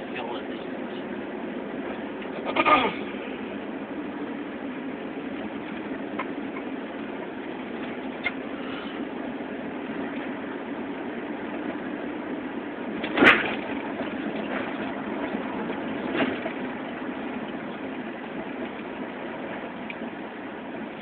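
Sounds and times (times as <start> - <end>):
car engine and road noise: 0.0 - 21.0
sharp thump: 13.0 - 13.6.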